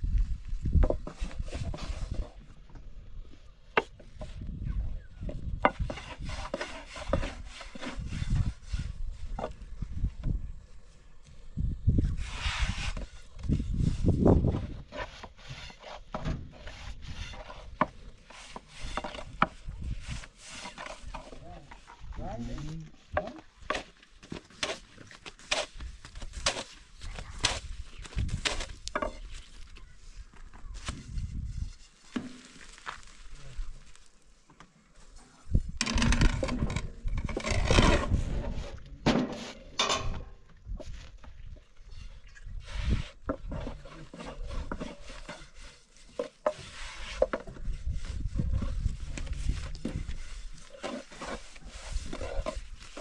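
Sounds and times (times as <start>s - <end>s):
flatbread rustling and scraping: 0.9s - 2.5s, 5.6s - 9.8s, 12.0s - 22.7s, 23.7s - 34.4s, 40.8s - 53.0s.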